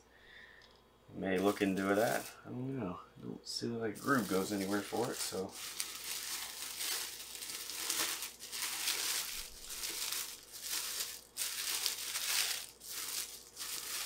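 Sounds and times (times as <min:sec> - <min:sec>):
plastic bag crinkling: 0:01.4 - 0:02.3, 0:04.0 - 0:14.0.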